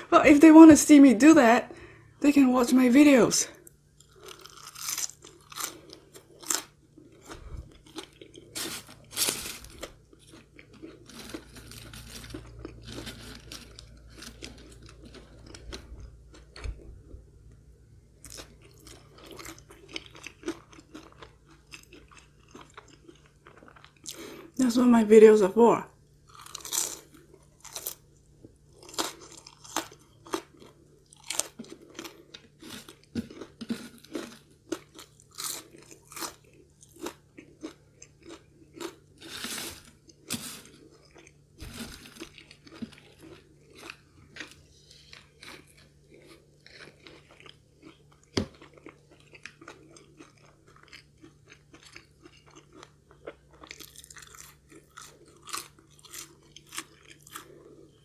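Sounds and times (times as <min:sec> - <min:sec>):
crunching fries: 0:03.7 - 0:17.0, 0:18.1 - 0:24.8, 0:26.2 - 0:58.0
quiet chewing: 0:18.2 - 0:24.6, 0:26.3 - 0:58.0.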